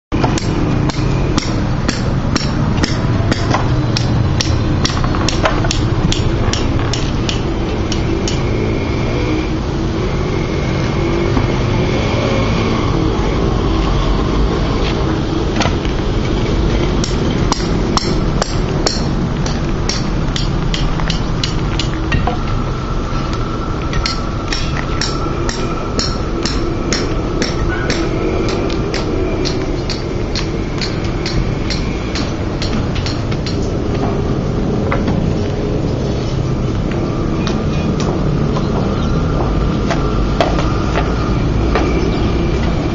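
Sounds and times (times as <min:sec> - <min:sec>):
steady low hum: 0:00.1 - 0:42.9
hammer knocking wooden formwork: 0:00.2 - 0:07.4
hammer blows ringing: 0:00.2 - 0:08.5, 0:17.0 - 0:22.3, 0:23.9 - 0:33.7.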